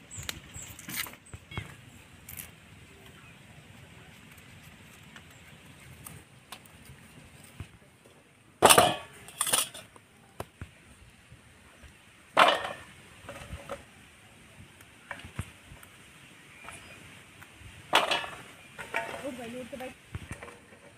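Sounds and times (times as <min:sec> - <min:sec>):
clatters against steel dishes: 0:08.6 - 0:09.9, 0:12.4 - 0:13.5, 0:17.9 - 0:19.2.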